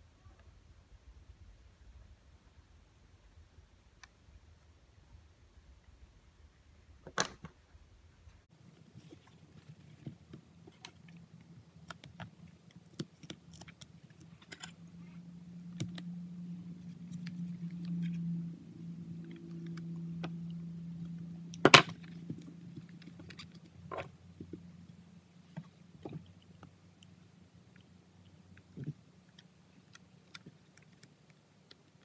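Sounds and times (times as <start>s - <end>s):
low steady hum: 0.0s - 32.0s
clips clicking and rustling: 11.8s - 15.0s.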